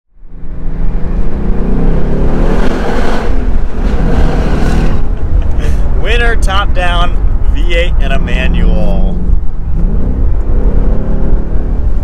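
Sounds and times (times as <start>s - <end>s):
car engine accelerating: 0.2s - 12.0s.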